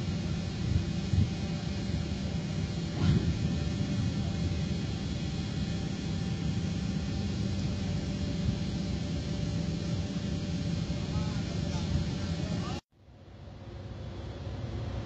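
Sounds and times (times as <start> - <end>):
wind on microphone: 0.0 - 11.0
ship engine rumble: 0.0 - 12.8
faint steady hums: 0.0 - 15.0.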